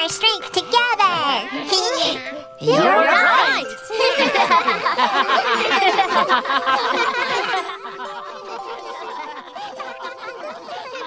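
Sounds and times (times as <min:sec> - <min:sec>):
cartoon voices laughing: 0:02.7 - 0:11.0.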